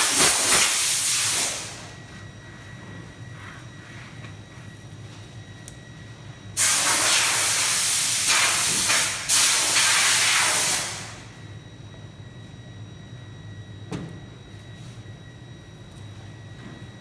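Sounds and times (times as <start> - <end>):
loud steady hiss of air: 0.0 - 2.0, 6.6 - 11.3.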